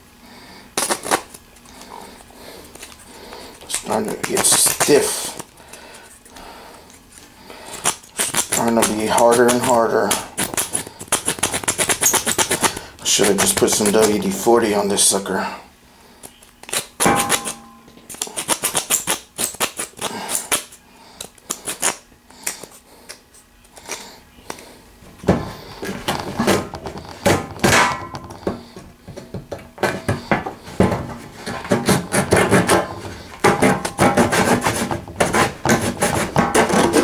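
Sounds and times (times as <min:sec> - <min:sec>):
saw rasping through wood: 0:30.6 - 0:37.0.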